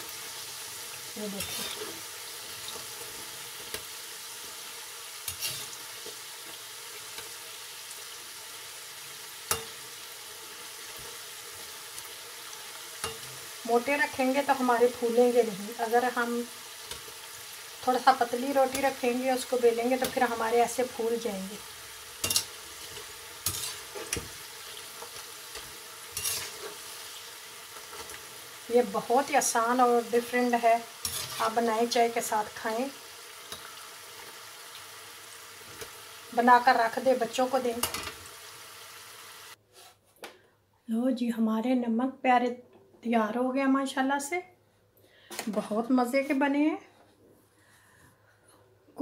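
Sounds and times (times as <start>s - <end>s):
dough sizzling in hot oil: 0.0s - 39.6s
spoon scraping a pan: 1.3s - 3.9s, 5.2s - 7.4s, 9.3s - 10.0s, 10.6s - 13.6s, 22.1s - 28.3s, 30.9s - 31.9s, 33.4s - 34.3s
metal spoon clicking on pan: 22.2s - 24.3s.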